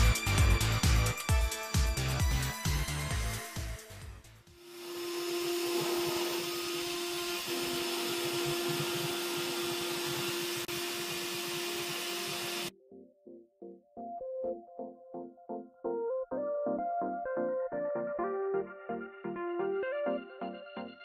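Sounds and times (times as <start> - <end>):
motor spindle humming: 4.6 - 12.7.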